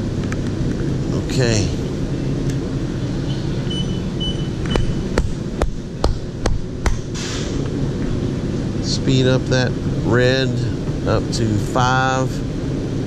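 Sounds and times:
printing press humming: 0.0 - 11.3
short hiss: 7.1 - 7.6.

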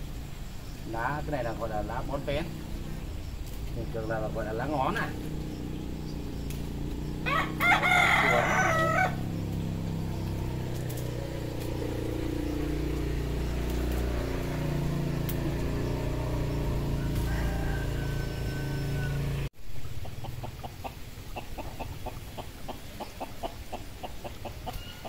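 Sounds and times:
steady low hum: 0.0 - 20.0
rooster crowing: 7.0 - 9.5, 15.6 - 19.5.

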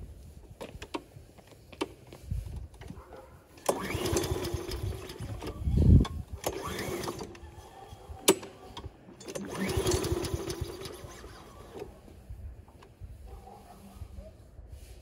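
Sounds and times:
lawn mower engine cranking: 3.6 - 7.6, 8.2 - 12.0.

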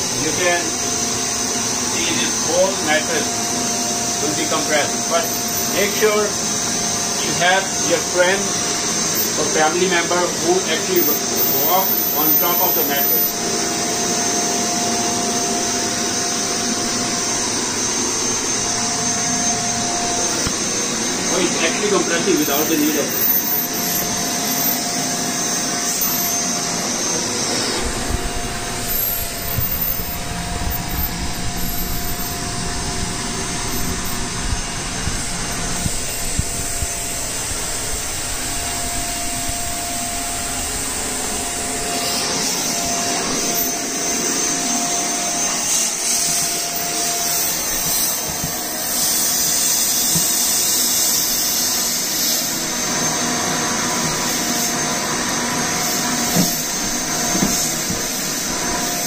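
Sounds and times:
vacuum cleaner running: 0.0 - 59.0
high hiss: 14.6 - 59.0.

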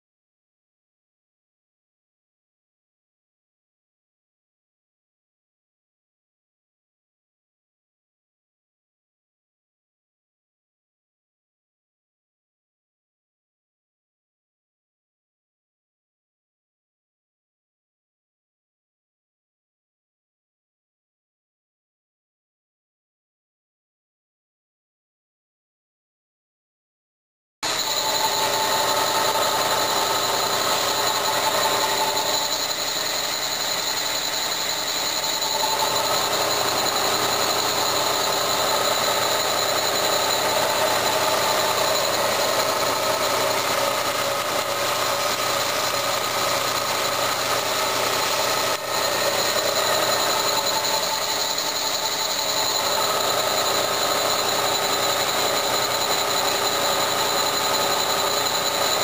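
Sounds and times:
boring bar cutting metal: 27.6 - 59.0
milling machine hum and whine: 27.6 - 59.0.

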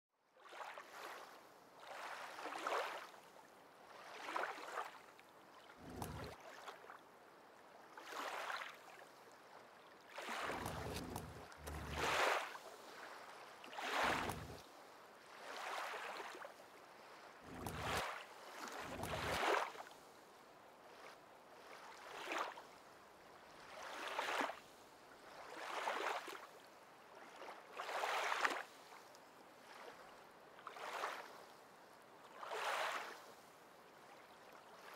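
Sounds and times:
water washing against a boat: 5.6 - 7.0, 10.1 - 14.8, 17.1 - 19.9.

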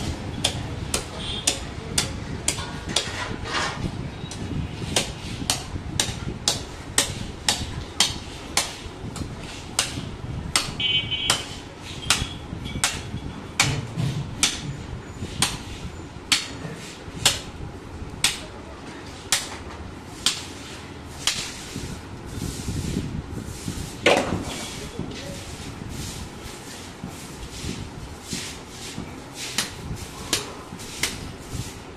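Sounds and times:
knife chopping carcass: 0.4 - 3.3, 4.3 - 8.8, 9.8 - 14.7, 16.3 - 16.6, 17.2 - 17.5, 18.2 - 18.5, 19.2 - 19.6, 20.2 - 20.5, 21.2 - 21.6, 29.5 - 31.2.

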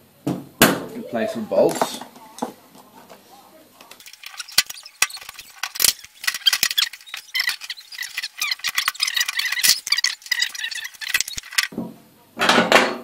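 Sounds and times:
plastic crinkling and crackling: 4.0 - 11.7.

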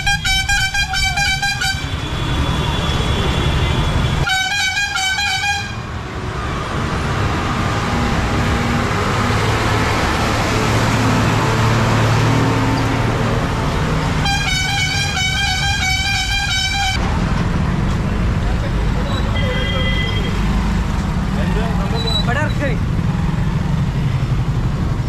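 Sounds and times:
vehicle horn tooting: 0.0 - 5.8, 14.2 - 17.0, 19.3 - 20.4
road noise: 0.0 - 25.0.

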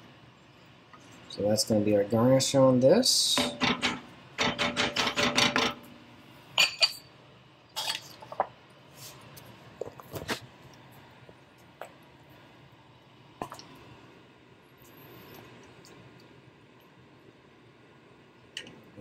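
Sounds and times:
metal utensils clinking: 7.8 - 8.2.

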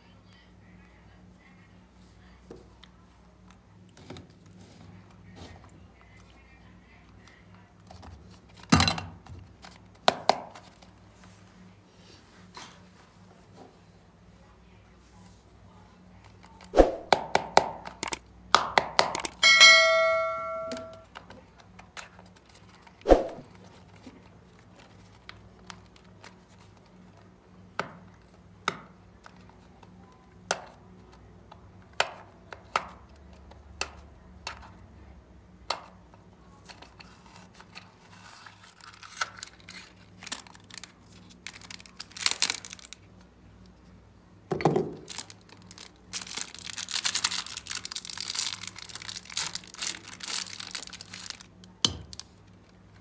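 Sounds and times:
ringing ping: 19.4 - 21.0
candy wrapper crinkling: 36.6 - 43.3, 45.0 - 53.0.

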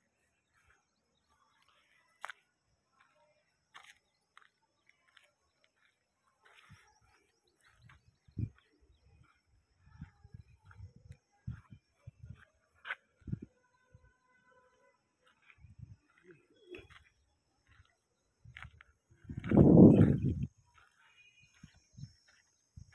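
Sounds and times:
faint bird chirps: 0.0 - 22.9.

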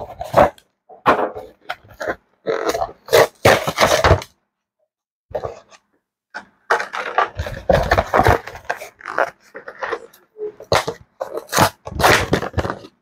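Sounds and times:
packaging rustling and scraping: 0.0 - 0.6, 1.2 - 4.3, 6.4 - 13.0.

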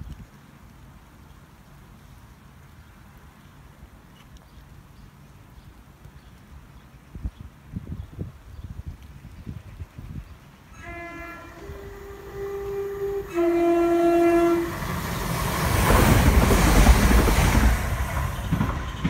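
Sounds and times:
two-tone train horn: 10.7 - 15.3
train passing at speed: 10.7 - 19.0.

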